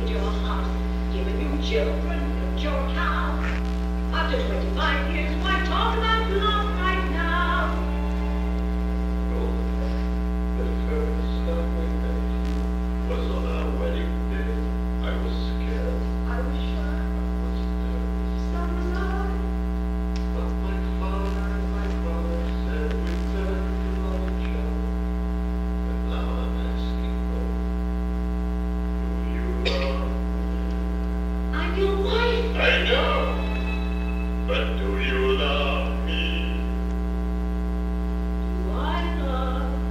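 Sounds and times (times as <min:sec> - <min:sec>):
electrical mains hum: 0:00.0 - 0:39.9
loud voice: 0:29.3 - 0:30.2, 0:31.6 - 0:33.6, 0:34.5 - 0:36.7
film dialogue: 0:31.8 - 0:37.3.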